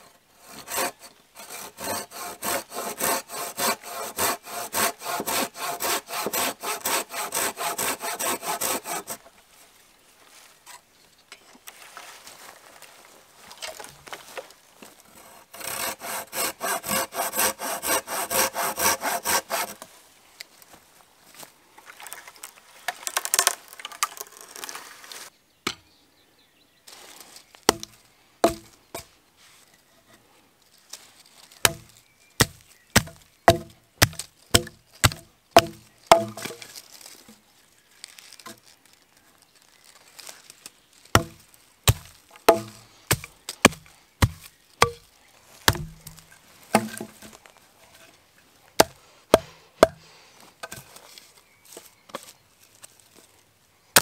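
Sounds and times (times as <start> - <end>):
rasping sawing: 0.4 - 9.2, 15.2 - 19.8
machete chopping wood: 27.7 - 29.1, 31.6 - 36.7, 41.1 - 45.0, 45.6 - 47.4, 48.8 - 50.0.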